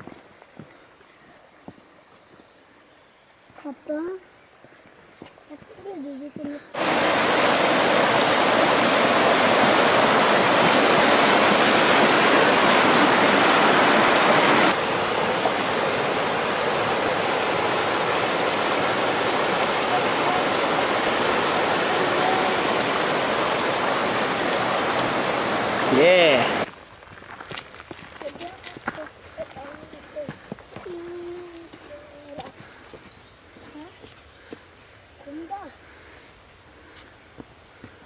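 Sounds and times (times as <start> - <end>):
stream rushing over rocks: 6.7 - 26.7.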